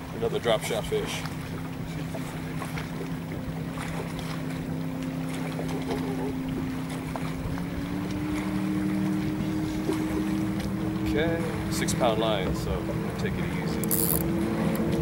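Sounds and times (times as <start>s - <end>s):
boat motor humming: 0.0s - 15.0s.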